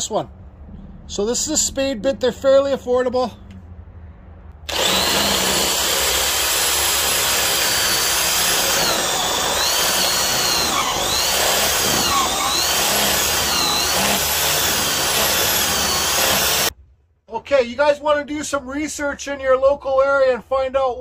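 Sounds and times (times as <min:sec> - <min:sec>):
power drill boring into wood: 0:04.7 - 0:16.7.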